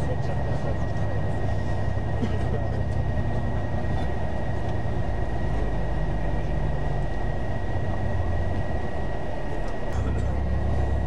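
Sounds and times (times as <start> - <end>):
vehicle interior rumble: 0.0 - 11.0.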